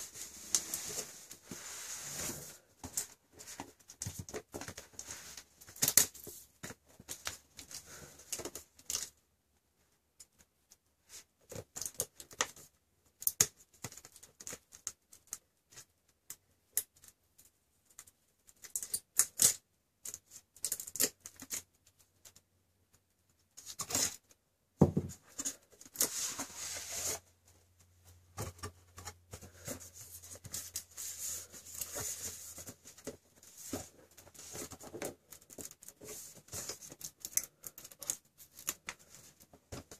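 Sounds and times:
cardboard sliding and rustling: 0.0s - 5.5s, 24.9s - 27.3s.

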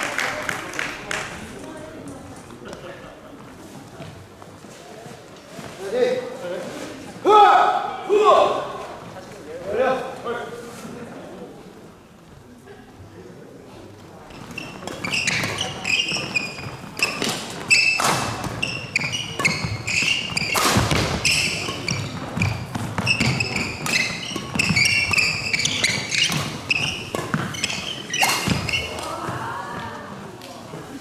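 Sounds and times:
shoes squeaking on wooden floor: 14.2s - 30.1s
rackets hitting shuttlecock: 14.6s - 29.3s.

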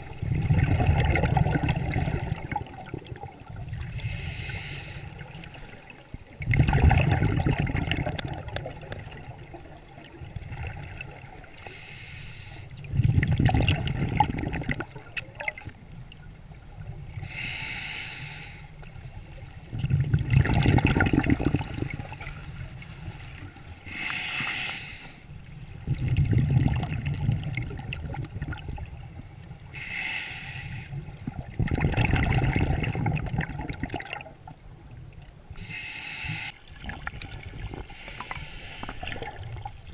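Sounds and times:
bubbling exhaled air: 0.0s - 9.2s, 12.8s - 15.6s, 19.7s - 22.4s, 25.9s - 28.8s, 29.8s - 34.2s
regulator hissing inhale: 3.9s - 5.2s, 11.6s - 12.7s, 17.2s - 19.7s, 23.8s - 25.3s, 29.7s - 31.0s, 35.6s - 36.7s, 37.8s - 39.3s.

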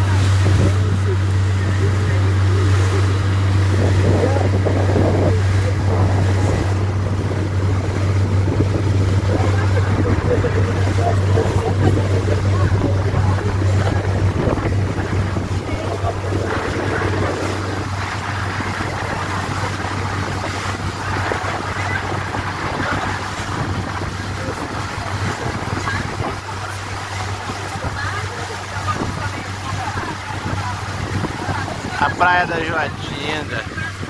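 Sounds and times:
boat engine drone: 0.0s - 34.0s
water rushing from hull: 0.0s - 34.0s
wind buffeting microphone: 0.0s - 34.0s.

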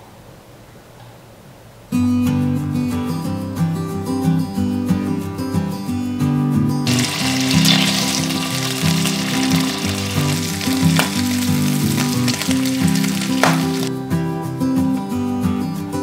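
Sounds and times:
background music: 6.8s - 16.0s
bacon sizzling in a pan: 6.9s - 13.9s.

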